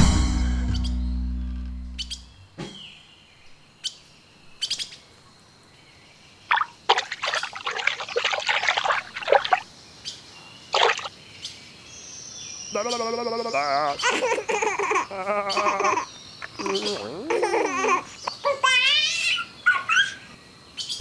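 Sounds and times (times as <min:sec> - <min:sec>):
music with drums: 0:00.0 - 0:01.3
birds chirping: 0:06.1 - 0:21.0
water splashing and trickling: 0:06.4 - 0:09.8, 0:10.7 - 0:11.2.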